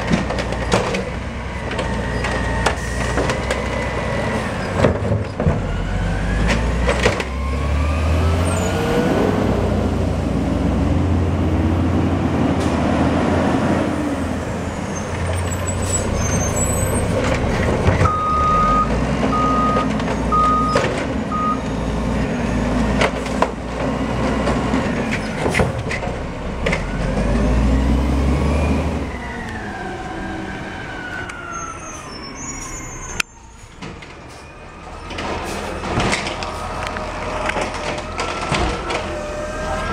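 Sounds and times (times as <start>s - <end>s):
garbage truck engine revving: 0.0s - 31.3s.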